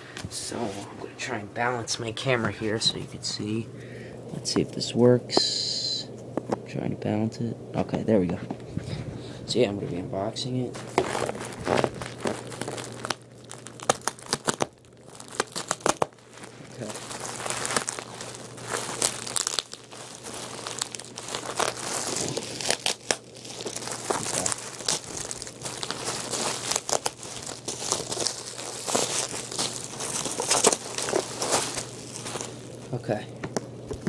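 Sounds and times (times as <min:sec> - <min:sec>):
plastic crinkling: 0:10.5 - 0:33.2
tape ripping: 0:10.7 - 0:32.9.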